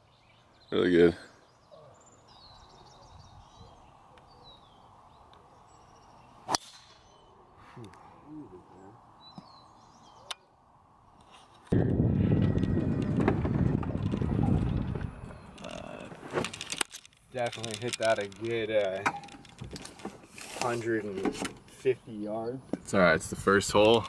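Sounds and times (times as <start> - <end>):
birds chirping faintly: 0.0 - 11.7, 13.9 - 24.0
golf ball struck by a club: 6.4 - 7.2
golf cart rumbling: 11.8 - 20.4.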